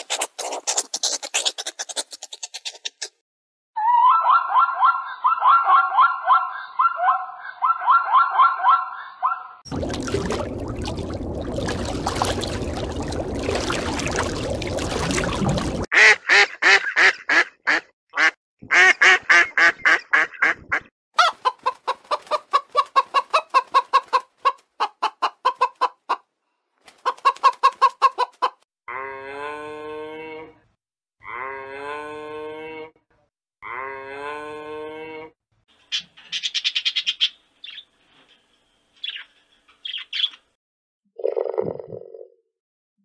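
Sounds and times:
chicken clucking: 0.1s - 3.1s, 21.2s - 26.3s, 26.9s - 28.6s.

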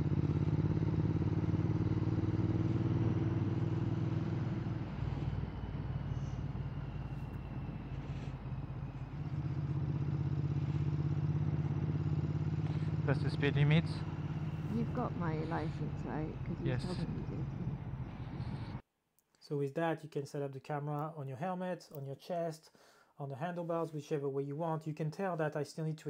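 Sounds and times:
motorcycle engine running: 0.0s - 18.8s.

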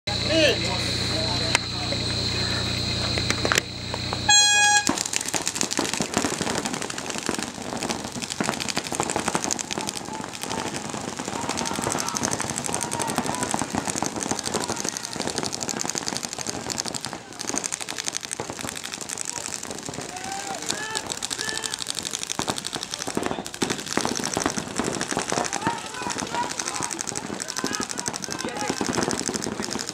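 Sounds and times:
horn blast: 4.3s - 5.0s
paintball markers popping: 4.9s - 29.9s.

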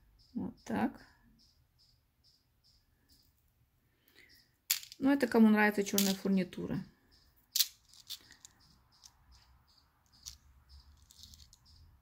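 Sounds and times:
faint high-pitched chirp: 0.0s - 4.6s, 6.1s - 12.0s
metal bead caps clicking: 4.1s - 5.2s, 5.8s - 6.4s, 7.4s - 11.8s.

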